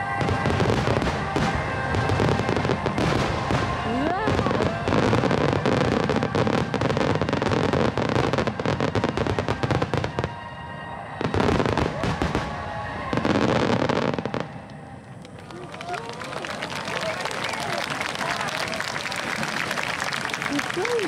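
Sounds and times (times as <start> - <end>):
fireworks crackling and bursting: 0.0 - 21.0.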